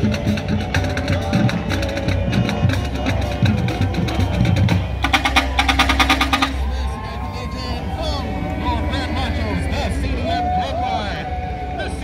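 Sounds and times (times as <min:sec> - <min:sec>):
fast rattle of beats: 0:00.0 - 0:06.8
music with drums: 0:00.0 - 0:06.8.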